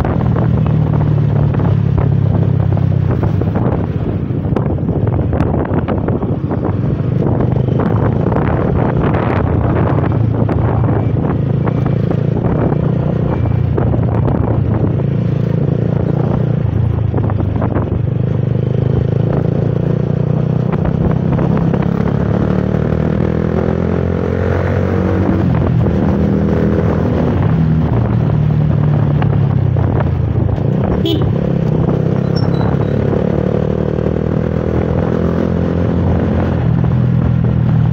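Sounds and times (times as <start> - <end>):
road noise: 0.0 - 37.9
wind noise: 0.0 - 37.9
motorcycle engine running: 25.4 - 37.9.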